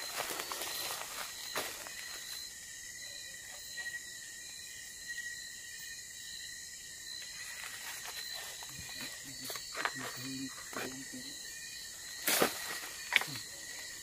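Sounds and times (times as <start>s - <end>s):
crickets trilling: 0.0s - 14.0s.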